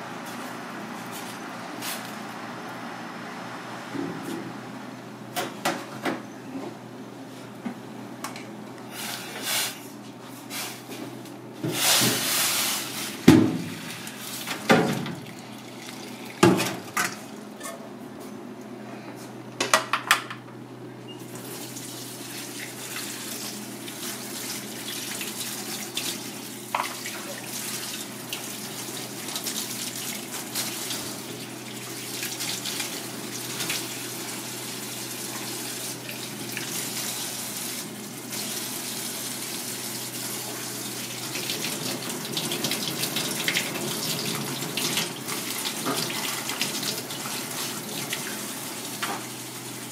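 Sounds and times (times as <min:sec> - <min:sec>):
fish rinsed by hand: 0:21.4 - 0:49.9.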